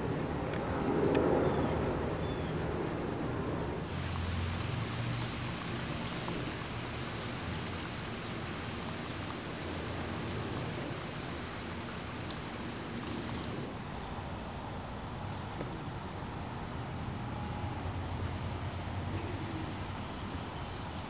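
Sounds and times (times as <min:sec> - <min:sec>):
steady hiss: 0:03.8 - 0:21.0.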